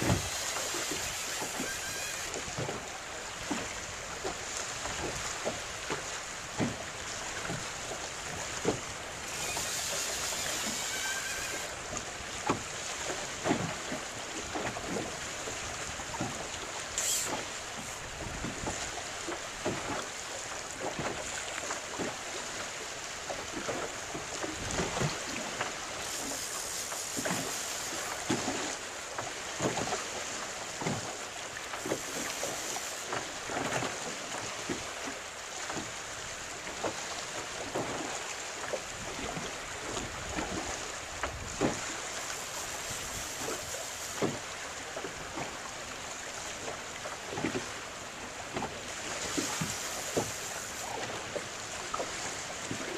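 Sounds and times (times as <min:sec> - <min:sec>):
wind hiss on microphone: 0:00.0 - 0:02.6, 0:08.3 - 0:12.0, 0:25.9 - 0:28.7, 0:31.8 - 0:33.4, 0:41.2 - 0:44.7, 0:49.1 - 0:51.2
water slapping boat hull: 0:00.0 - 0:52.9.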